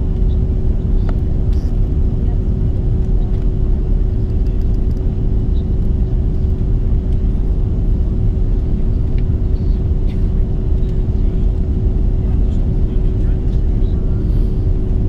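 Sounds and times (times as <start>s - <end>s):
airliner cabin engine rumble: 0.0s - 15.0s.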